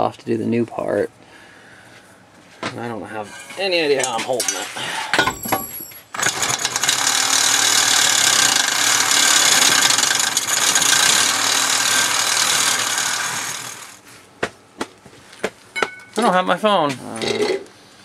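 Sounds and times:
reciprocating saw cutting metal: 6.1 - 14.0.

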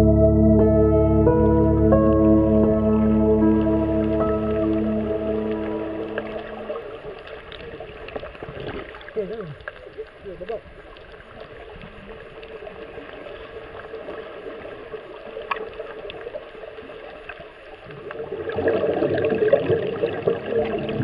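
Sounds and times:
muffled rushing water underwater: 0.0 - 21.0.

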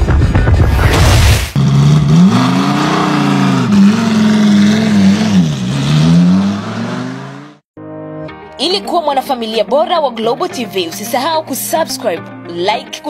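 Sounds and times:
car engine revving: 0.9 - 7.7.

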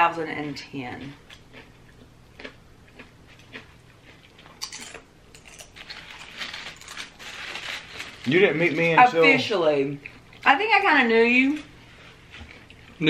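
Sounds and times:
tortilla chips crackling: 2.4 - 9.2.

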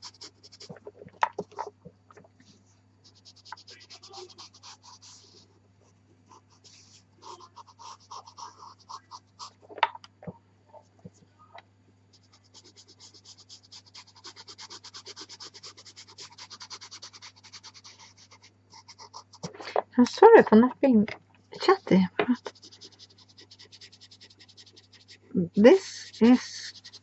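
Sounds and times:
pencil scratching on paper: 0.0 - 1.0, 3.0 - 5.5, 6.3 - 9.6, 12.1 - 19.5, 21.6 - 27.0.

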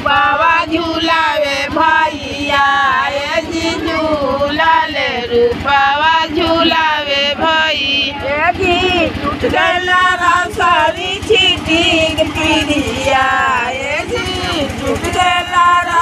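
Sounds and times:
woman singing: 0.0 - 16.0.

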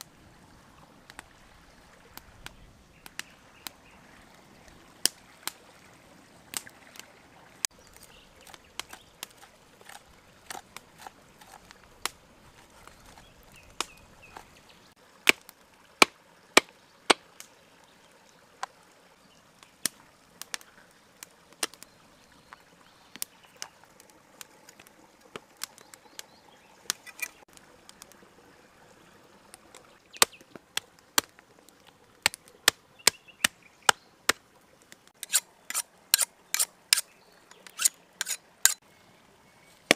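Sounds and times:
small stream running: 0.0 - 39.9.

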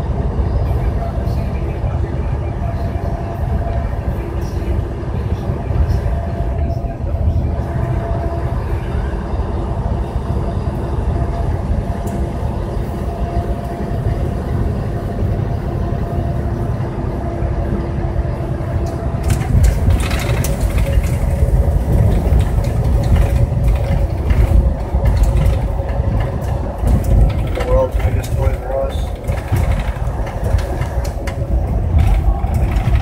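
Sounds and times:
road noise: 0.0 - 33.0
truck engine drone: 0.0 - 33.0
clattering and rattling: 19.2 - 33.0.

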